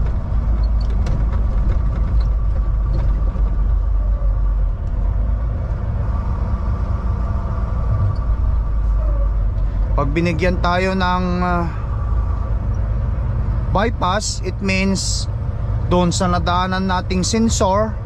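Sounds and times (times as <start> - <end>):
diesel truck engine droning: 0.0 - 18.0
road noise: 0.0 - 18.0.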